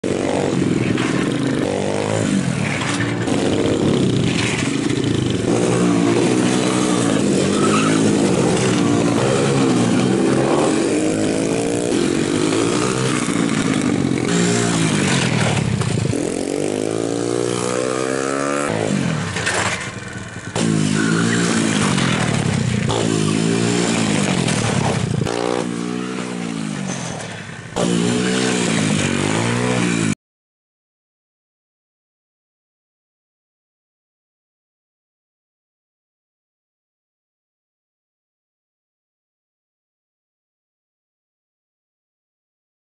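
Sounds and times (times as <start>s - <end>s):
small motorcycle engine revving: 0.0s - 30.2s.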